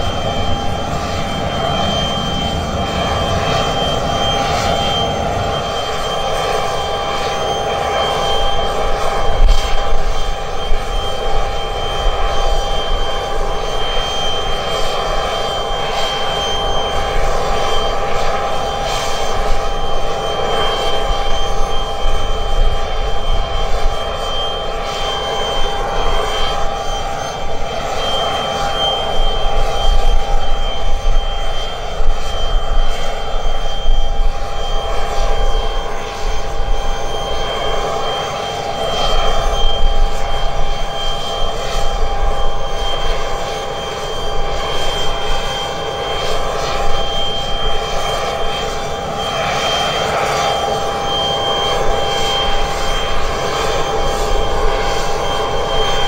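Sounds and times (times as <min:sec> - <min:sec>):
aircraft engines whining: 0:00.0 - 0:56.0.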